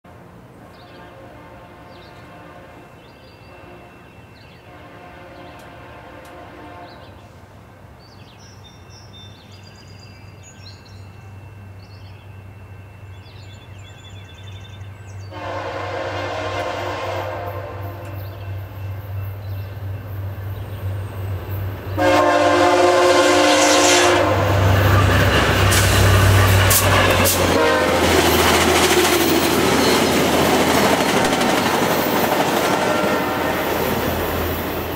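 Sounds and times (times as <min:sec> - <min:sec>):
train wheels roaring on rail: 0:00.1 - 0:08.0, 0:09.3 - 0:34.9
train air horn: 0:00.6 - 0:07.4, 0:15.2 - 0:18.4, 0:21.9 - 0:31.4, 0:32.6 - 0:34.5.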